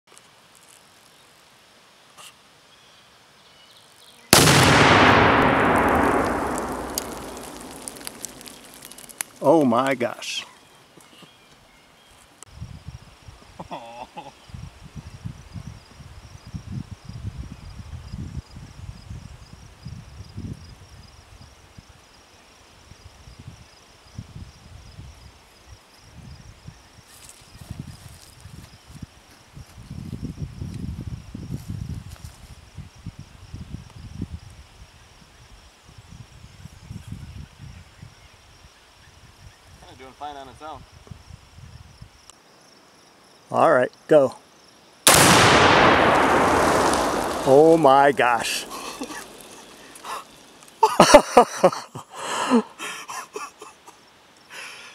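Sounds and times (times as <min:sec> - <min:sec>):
loud explosion boom: 0:04.4 - 0:08.9, 0:45.1 - 0:50.1
low rumbles: 0:04.4 - 0:09.2, 0:45.1 - 0:50.4
rolling echo: 0:04.4 - 0:09.2, 0:45.1 - 0:50.5
high insect trill: 0:38.1 - 0:52.0.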